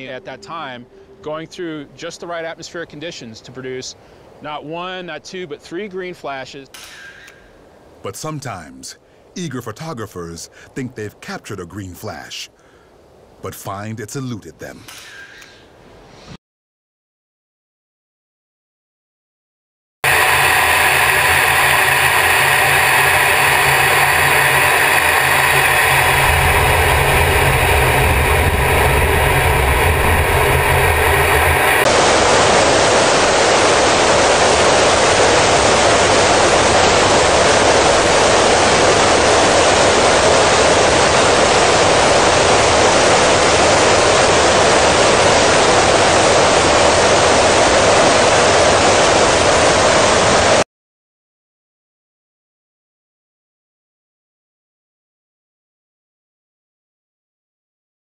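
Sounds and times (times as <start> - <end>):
cockpit hum with fixed tones: 0.0 - 3.0, 20.0 - 31.9
rush of wind and engine noise: 20.1 - 50.6.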